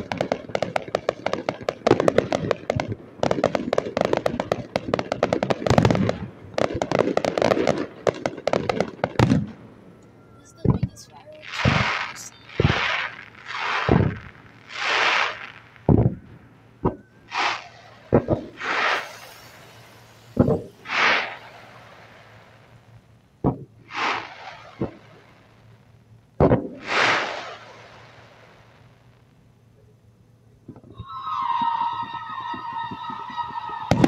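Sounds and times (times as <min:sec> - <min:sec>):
firework launch thumps: 0:00.0 - 0:09.6, 0:10.6 - 0:25.3, 0:26.4 - 0:28.1
firework hiss: 0:10.4 - 0:16.1, 0:17.2 - 0:25.9, 0:26.6 - 0:29.2.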